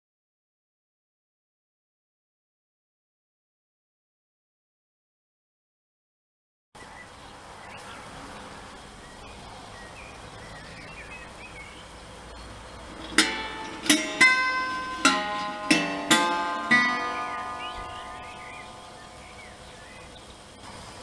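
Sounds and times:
faint background noise: 0:06.8 - 0:21.0
guitar strings plucked: 0:12.9 - 0:19.6.

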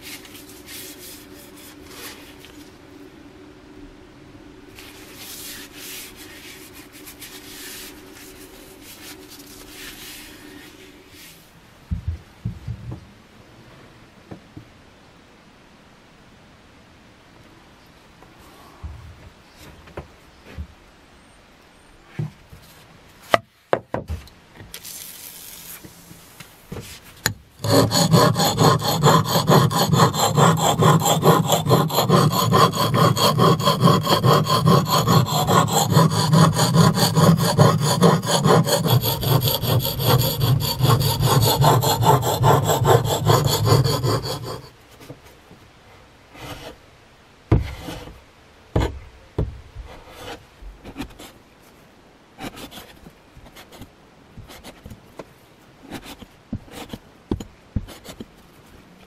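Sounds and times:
axe honing on whetstone: 0:27.2 - 0:44.7.

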